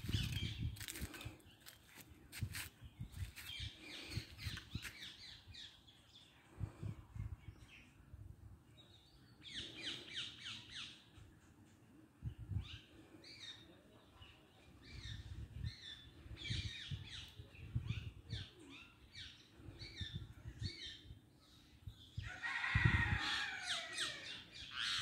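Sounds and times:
birds chirping and squawking: 0:18.7 - 0:25.0.

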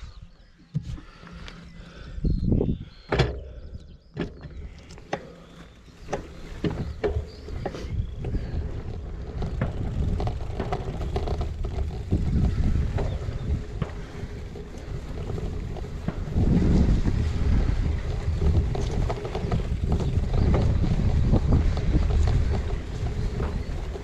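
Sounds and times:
wind buffeting microphone: 0:00.0 - 0:24.0
bike frame rattling clicks: 0:04.3 - 0:24.0.

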